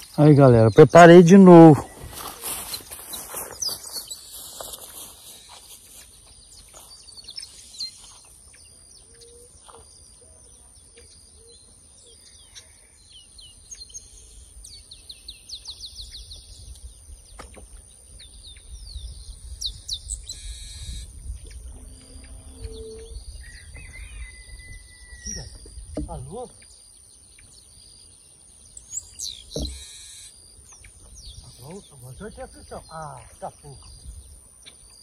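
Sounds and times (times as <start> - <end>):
birds chirping and calling: 0.0 - 35.0.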